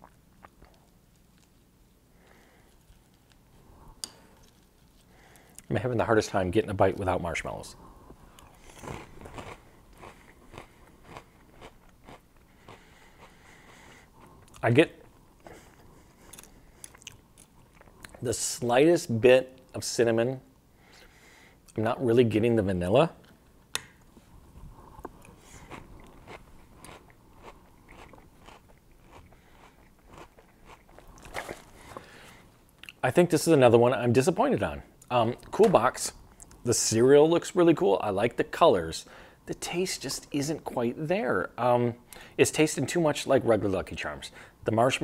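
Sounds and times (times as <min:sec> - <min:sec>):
person chewing crunchy cereal: 0:08.3 - 0:18.2, 0:25.0 - 0:33.0.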